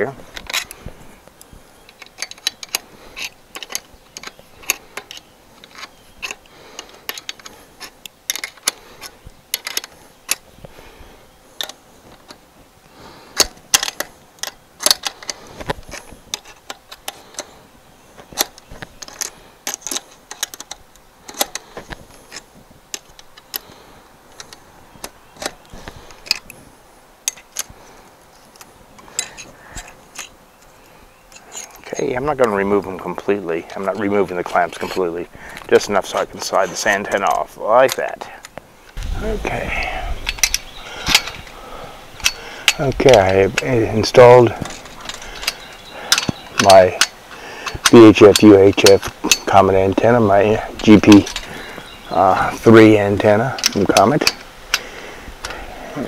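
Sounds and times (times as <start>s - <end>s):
wrench clicking on metal: 40.3s - 41.5s, 45.2s - 49.5s.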